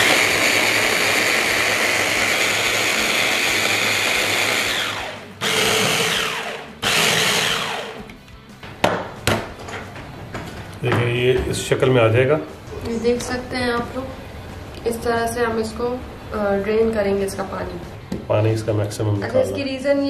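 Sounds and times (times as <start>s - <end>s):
hand blender motor chopping: 0.0s - 8.1s.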